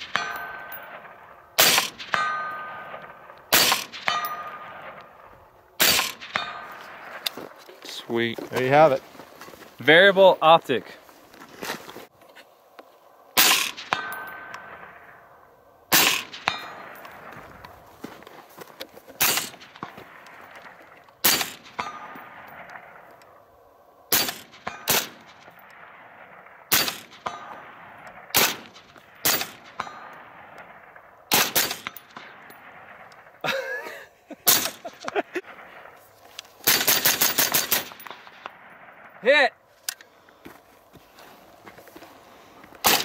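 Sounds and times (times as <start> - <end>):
short metallic ring: 0.0 - 4.8, 13.4 - 15.3
rifle shots: 0.0 - 7.6, 13.4 - 18.0, 19.2 - 33.5, 34.4 - 39.5, 42.8 - 43.0.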